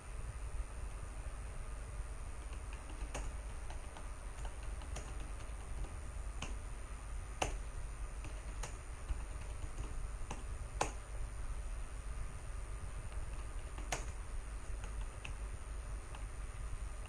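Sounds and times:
faint high electronic whine: 0.0 - 17.0
steady low hum: 0.0 - 17.0
keyboard key clicks: 2.4 - 6.6, 7.4 - 7.6, 8.2 - 11.0, 13.1 - 15.4.

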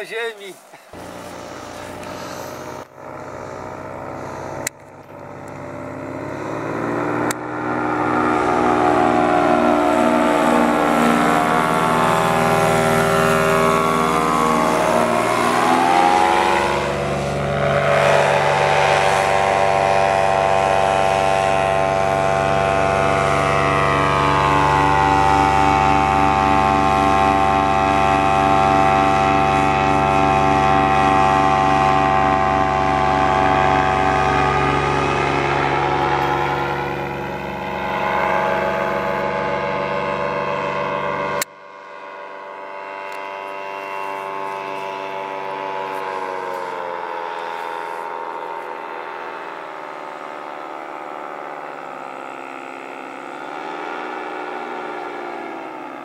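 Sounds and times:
paramotor engine and propeller: 0.0 - 56.0.

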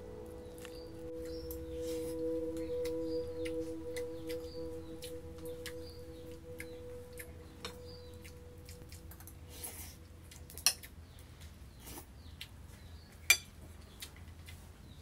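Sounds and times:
cutlery clinking on a plate: 13.3 - 13.5.

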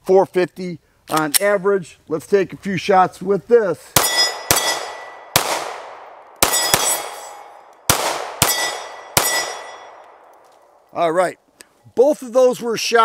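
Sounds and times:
steel plate target ringing: 4.0 - 5.4, 6.4 - 7.6, 8.4 - 10.1
pistol shots: 4.0 - 10.3.

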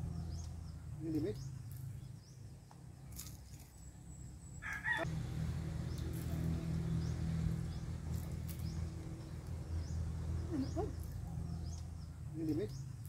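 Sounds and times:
steady low hum: 0.0 - 13.0
rooster crowing: 4.6 - 5.2.

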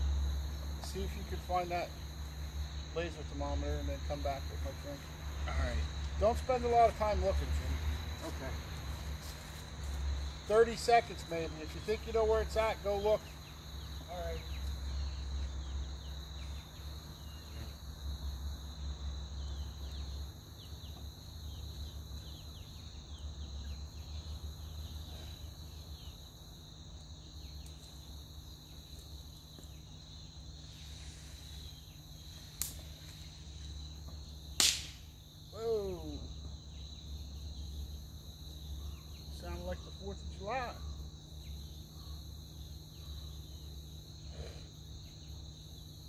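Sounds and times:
insects trilling: 0.0 - 46.0
sharp snap: 32.6 - 32.8, 34.6 - 35.1.

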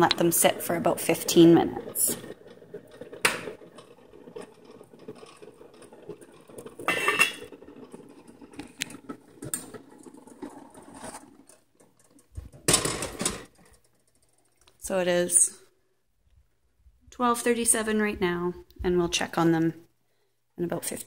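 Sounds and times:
metal lid clattering onto pot: 6.8 - 7.6.

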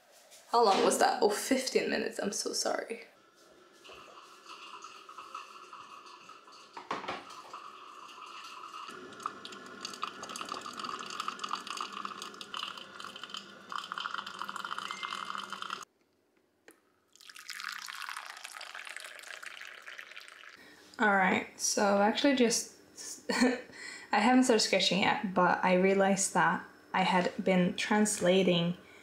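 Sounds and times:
coffee pouring into bowl: 3.6 - 15.9, 17.1 - 20.6
liquid trickling and bubbling: 3.7 - 15.9, 17.1 - 20.6.

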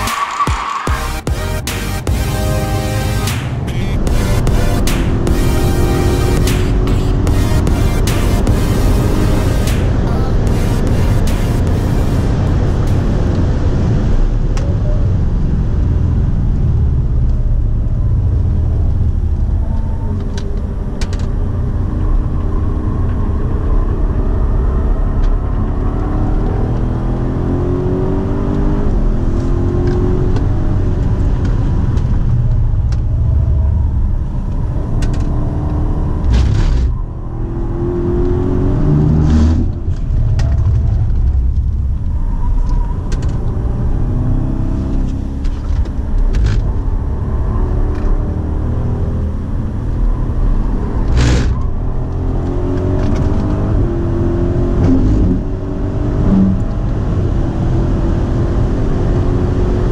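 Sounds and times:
car engine revving through upshifts: 0.0 - 14.1, 24.6 - 31.5, 34.8 - 41.0, 42.1 - 59.9.

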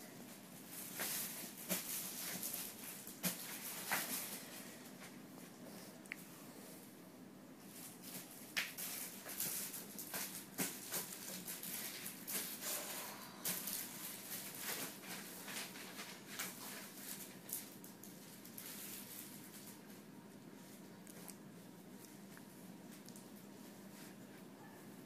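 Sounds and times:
rustling and soft clicks: 13.4 - 24.9.

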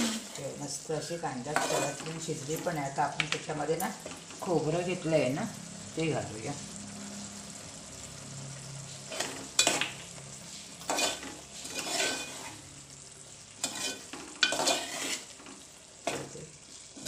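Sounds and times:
spoon scraping a metal pan: 0.0 - 2.8, 9.0 - 12.7, 13.6 - 17.0
curry sizzling: 0.0 - 17.0.

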